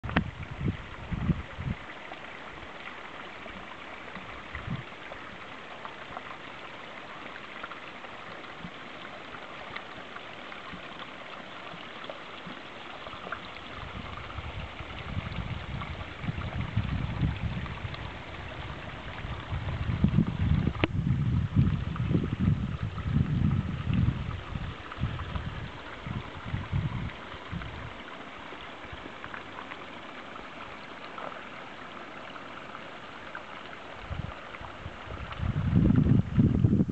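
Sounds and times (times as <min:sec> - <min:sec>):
wind rumble on microphone: 0:00.0 - 0:02.6, 0:04.2 - 0:05.4, 0:13.1 - 0:29.6, 0:33.8 - 0:36.9
stream water rushing: 0:00.0 - 0:36.9.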